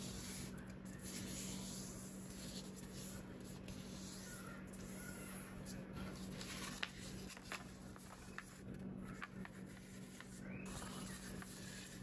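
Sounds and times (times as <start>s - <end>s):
paper rustling and crackling: 5.6s - 12.0s
small crisp paper clicks: 5.6s - 12.0s.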